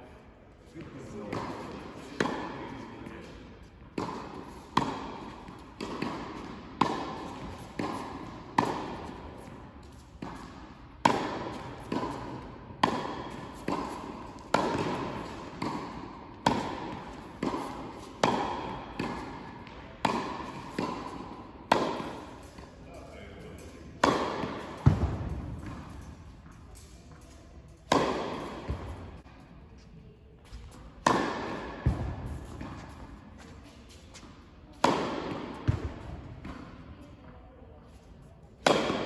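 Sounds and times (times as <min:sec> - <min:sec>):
tennis ball struck by rackets: 0:01.3 - 0:22.7, 0:23.6 - 0:29.3, 0:31.0 - 0:33.6, 0:34.2 - 0:36.8, 0:38.6 - 0:39.0
ball bouncing on hard court: 0:03.1 - 0:22.7, 0:23.6 - 0:29.3, 0:30.4 - 0:33.5, 0:34.2 - 0:36.7.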